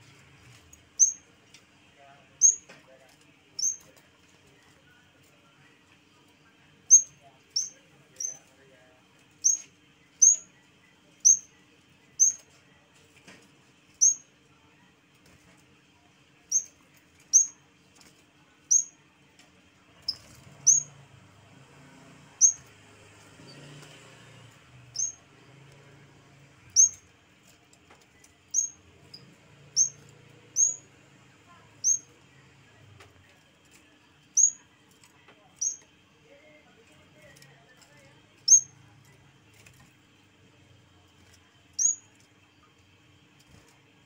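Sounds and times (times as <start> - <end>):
warbler chirping: 1.0 - 1.2, 2.4 - 2.7, 3.6 - 3.9, 6.9 - 8.4, 9.4 - 10.5, 11.2 - 11.5, 12.2 - 12.4, 14.0 - 14.3, 16.5 - 17.6, 18.7 - 19.0, 20.1 - 21.0, 22.4 - 22.7, 24.9 - 25.2, 26.7 - 27.0, 28.5 - 30.9, 31.8 - 32.1, 34.4 - 34.6, 35.6 - 35.8, 38.4 - 38.8, 41.8 - 42.1.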